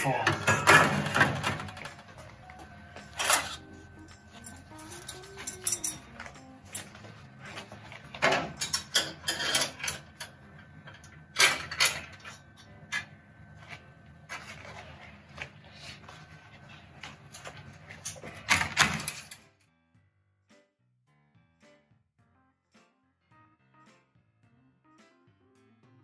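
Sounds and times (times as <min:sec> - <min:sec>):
wire rack clattering against metal pot: 0:00.0 - 0:01.9, 0:04.3 - 0:07.0, 0:08.0 - 0:13.1.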